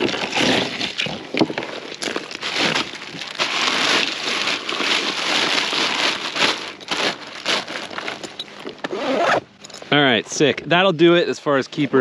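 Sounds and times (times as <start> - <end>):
ice cubes rattling: 0.0 - 8.5
plastic bag crinkling: 0.0 - 8.7.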